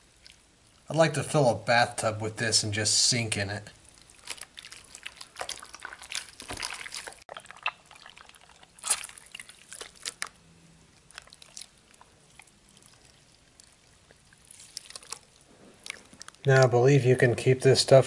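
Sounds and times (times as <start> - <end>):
slime squelching: 0.0 - 16.8
slime dripping into bowl: 3.9 - 16.5.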